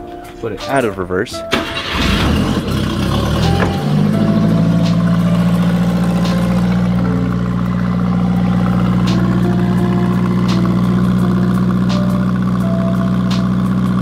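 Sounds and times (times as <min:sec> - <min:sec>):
truck engine idling: 0:00.0 - 0:14.0.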